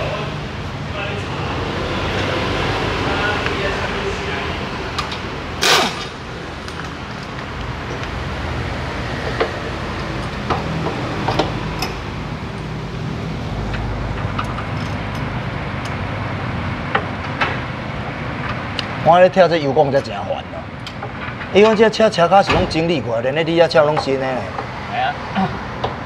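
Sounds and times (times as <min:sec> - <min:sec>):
workshop background noise: 0:00.0 - 0:26.0
pneumatic impact wrench burst: 0:05.6 - 0:06.2.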